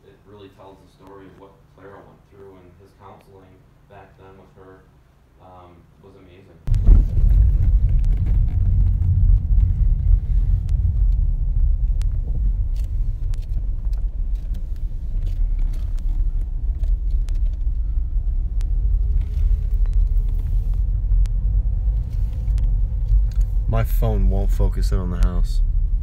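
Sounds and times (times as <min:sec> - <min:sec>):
car engine and tyres rumbling: 0:06.7 - 0:26.0.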